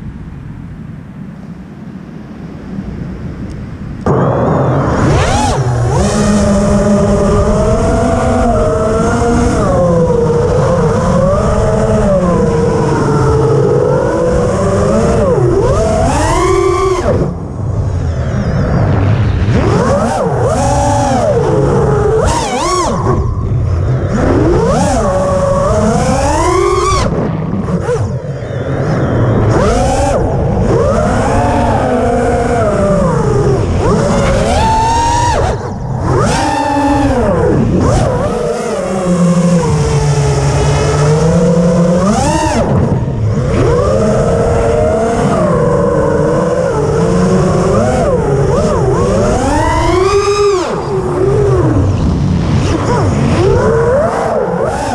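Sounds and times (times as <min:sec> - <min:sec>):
rushing air: 0:01.2 - 0:09.4, 0:16.1 - 0:22.2
quadcopter motors whining: 0:04.1 - 0:54.9.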